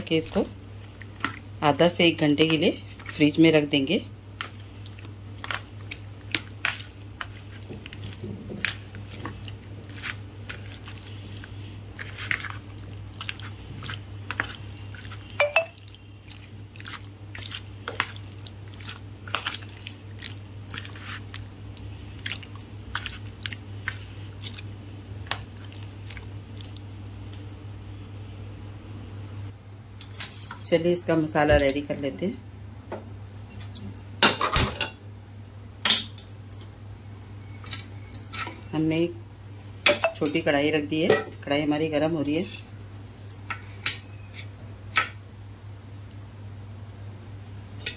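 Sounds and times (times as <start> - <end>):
steady low hum: 0.0 - 47.9
spoon stirring wet marinade: 0.2 - 26.8.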